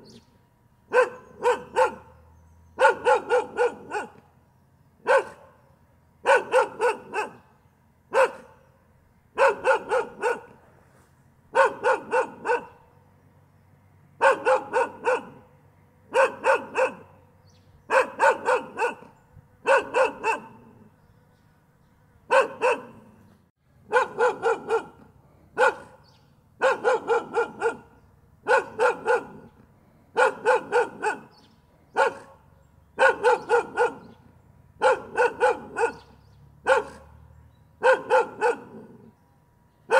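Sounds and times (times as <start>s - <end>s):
dog barking: 0.9s - 2.2s, 2.8s - 4.2s, 5.0s - 5.6s, 6.2s - 7.5s, 8.1s - 8.6s, 9.4s - 10.6s, 11.5s - 12.9s, 14.2s - 15.5s, 16.1s - 17.2s, 17.9s - 20.9s, 22.3s - 23.2s, 23.9s - 37.2s, 37.8s - 39.1s.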